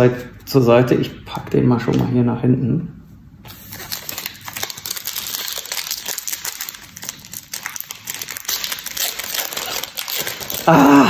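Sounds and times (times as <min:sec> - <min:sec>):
foil wrapper crinkling: 0:03.5 - 0:10.9.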